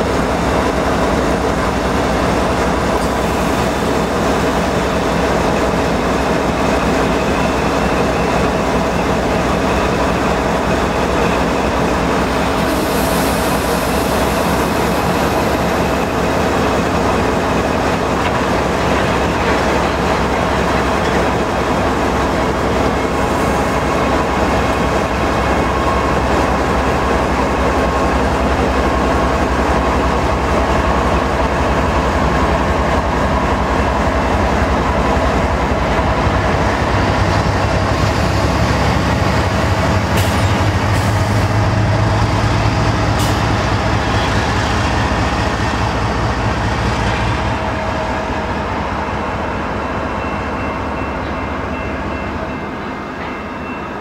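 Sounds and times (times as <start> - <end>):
diesel locomotives running: 0.0 - 54.0
wheels clickety-clack on rails: 14.2 - 49.1.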